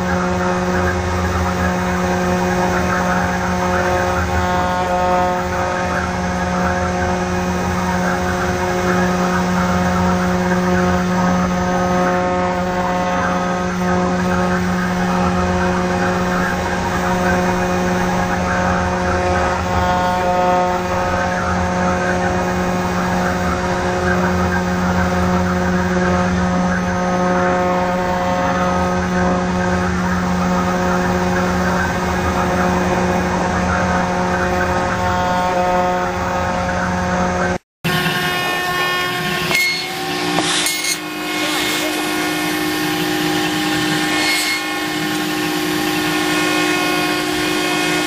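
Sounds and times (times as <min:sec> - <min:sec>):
router spindle motor hum: 0:00.0 - 0:48.0
bit cutting wood: 0:37.9 - 0:48.0.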